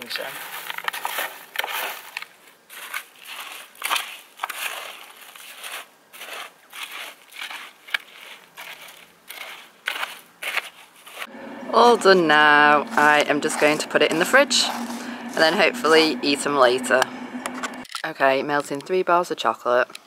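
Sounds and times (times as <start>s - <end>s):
cereal crunching stirred with spoon: 2.7s - 11.3s.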